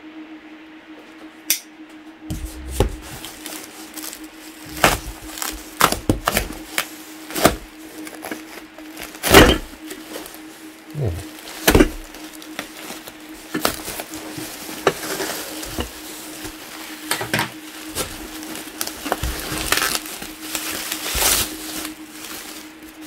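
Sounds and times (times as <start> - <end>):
steady low hum: 0.0 - 23.0
sharp cracks and knocks: 4.7 - 7.7.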